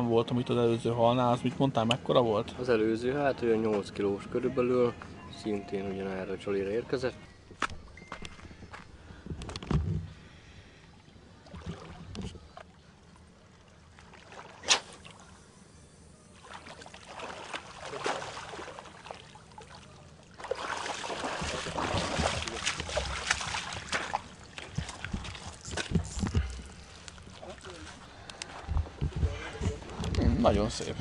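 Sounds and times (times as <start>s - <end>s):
fish thrashing in water: 16.4s - 28.0s.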